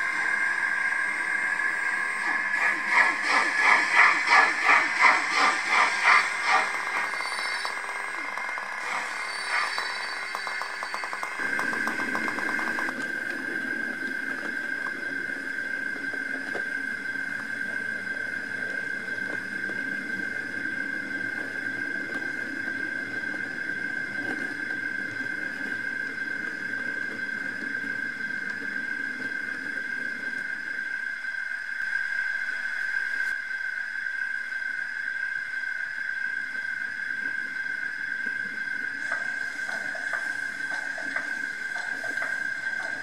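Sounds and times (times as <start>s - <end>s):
wheels rumbling on rails: 0.0s - 31.1s, 36.6s - 43.0s
model train whine: 0.0s - 43.0s.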